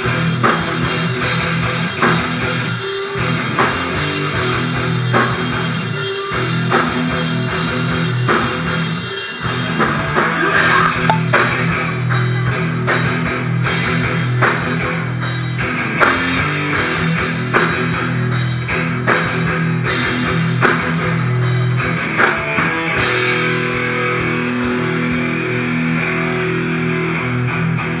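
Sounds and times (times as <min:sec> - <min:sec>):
distorted electric guitars: 0:00.0 - 0:28.0
heavy rock band playing: 0:00.0 - 0:28.0
drum kit beat: 0:10.5 - 0:15.3.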